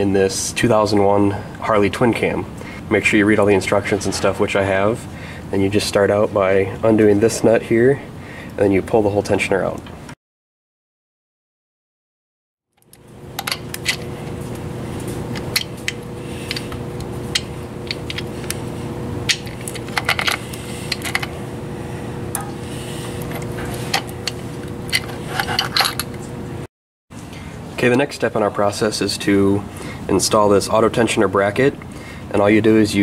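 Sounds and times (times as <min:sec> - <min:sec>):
steady background hum: 0:00.0 - 0:10.1, 0:12.8 - 0:33.0
metal chain clinking and scraping: 0:24.9 - 0:26.1.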